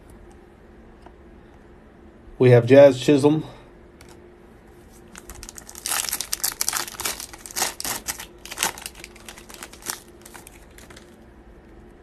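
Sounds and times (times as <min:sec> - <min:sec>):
foil wrapper crinkling: 0:05.0 - 0:11.2.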